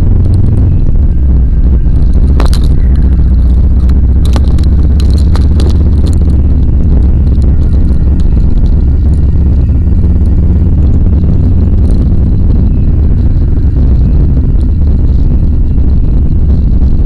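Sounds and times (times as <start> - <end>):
road and engine rumble: 0.0 - 17.0
light clicks and rattles: 2.0 - 10.4.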